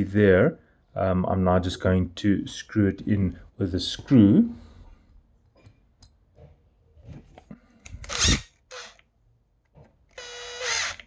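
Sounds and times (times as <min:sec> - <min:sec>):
screwdriver clicks and scrapes: 0:07.8 - 0:09.1.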